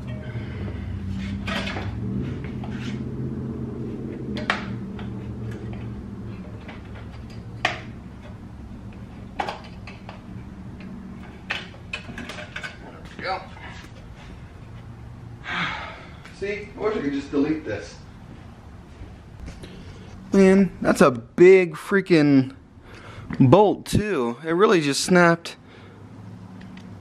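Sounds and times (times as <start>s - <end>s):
steady low hum: 0.0s - 21.4s.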